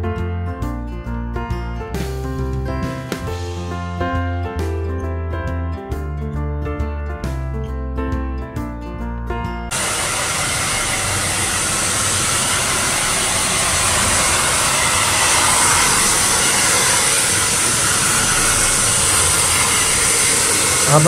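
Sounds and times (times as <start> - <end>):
hair dryer blowing: 9.7 - 21.0.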